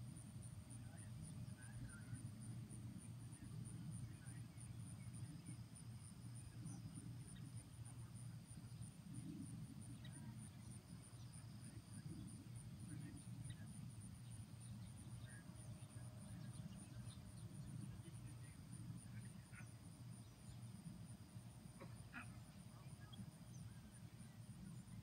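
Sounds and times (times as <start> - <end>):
insects chirping: 0.1 - 25.0.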